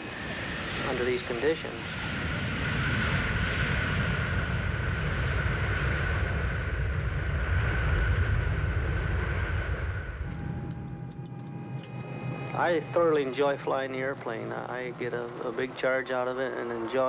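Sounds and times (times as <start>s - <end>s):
jet engine whine: 0.0s - 17.0s
low rumble of rolling gear: 9.9s - 16.1s.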